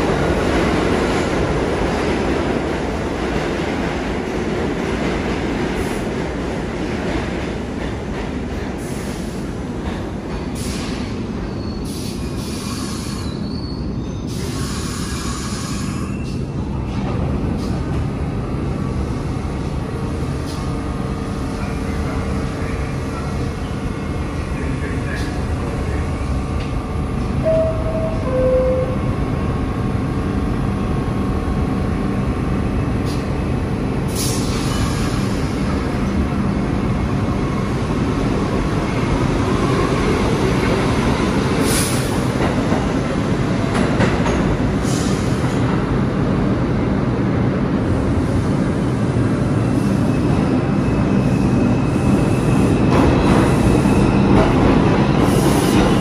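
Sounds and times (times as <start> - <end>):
high wheel squeals: 12.7 - 16.4
train wheel rumble: 14.3 - 56.0.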